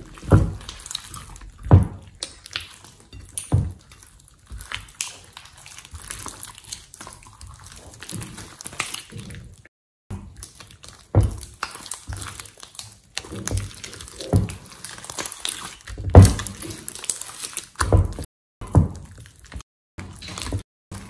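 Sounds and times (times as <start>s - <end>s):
slime slapping down thuds: 0.0s - 2.8s, 10.1s - 19.6s
sticky slime squishing: 0.0s - 21.0s.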